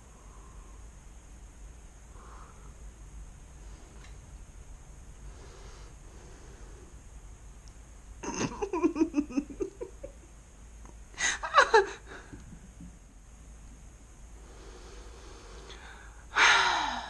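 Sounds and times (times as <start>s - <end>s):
woman laughing: 8.2s - 10.3s, 11.2s - 12.3s.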